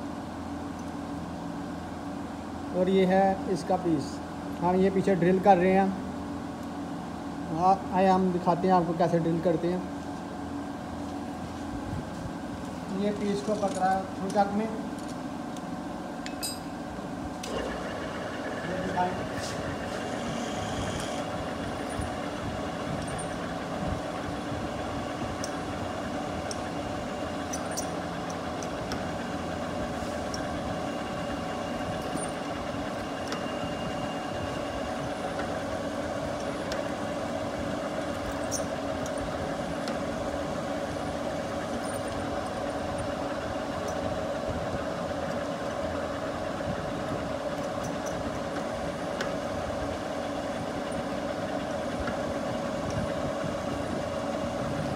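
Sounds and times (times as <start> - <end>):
metal lathe humming: 17.4 - 44.0
drill boring into metal: 20.0 - 21.4.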